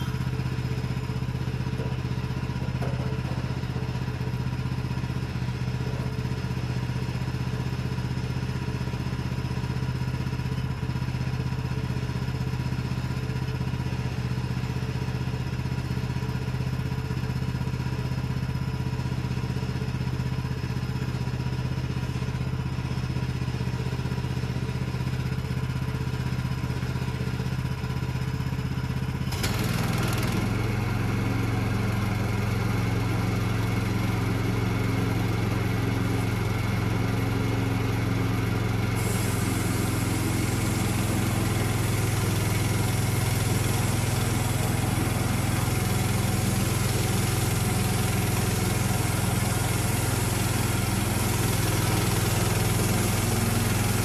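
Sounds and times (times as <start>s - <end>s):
engine idling: 0.0s - 54.0s.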